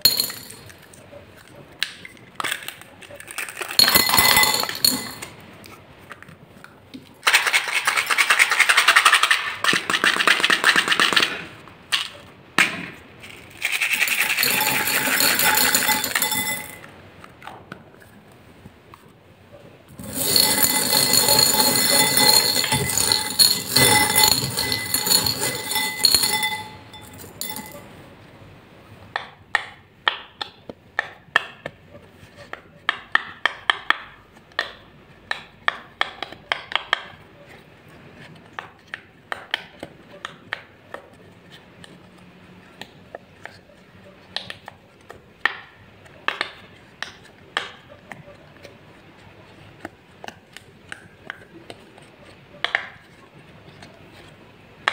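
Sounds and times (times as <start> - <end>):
beads clinking in glass bowl: 0.0 - 0.8, 3.5 - 5.4, 13.6 - 16.9, 20.0 - 27.9.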